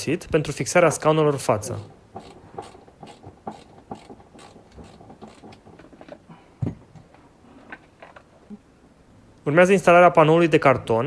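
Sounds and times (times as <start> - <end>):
ratchet wrench clicking: 1.8 - 5.4.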